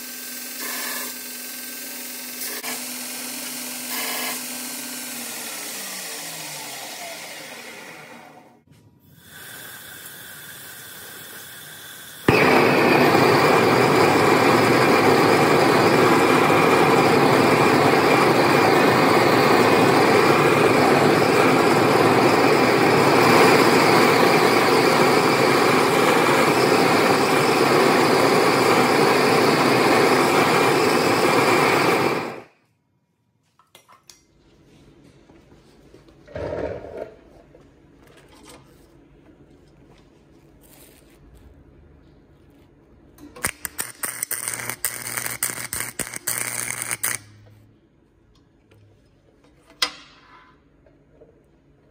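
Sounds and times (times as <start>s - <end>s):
gas torch burning loudly: 9.1s - 32.5s, 43.4s - 47.3s.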